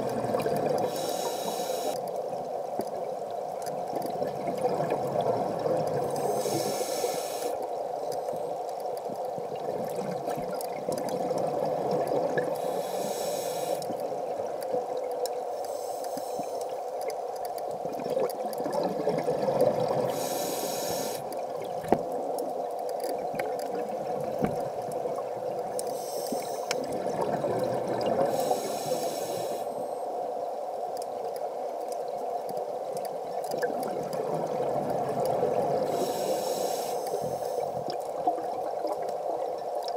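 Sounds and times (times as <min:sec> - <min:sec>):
steady underwater hum: 0:00.0 - 0:39.9
exhaled bubbles rushing: 0:26.8 - 0:28.3.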